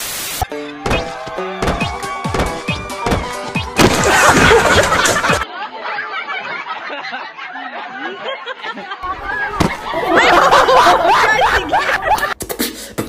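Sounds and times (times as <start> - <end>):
loud hiss-like burst: 0.0 - 0.4
music with thumping beat: 0.8 - 4.1.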